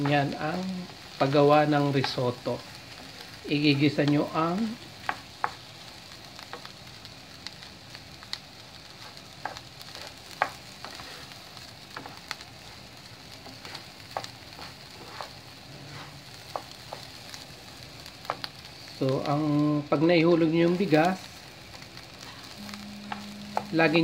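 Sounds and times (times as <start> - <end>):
food sizzling in frying pan: 0.0 - 24.0
spatula scraping and knocking pan: 13.6 - 17.2.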